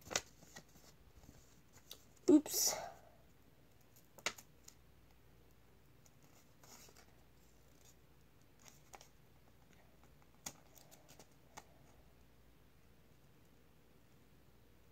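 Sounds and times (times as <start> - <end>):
paper being handled: 0.0 - 2.1.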